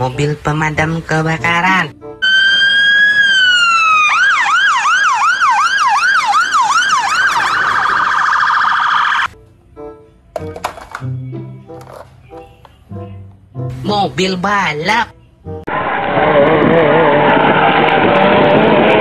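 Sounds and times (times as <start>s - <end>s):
fire engine electronic siren: 2.2s - 9.4s, 15.7s - 19.0s.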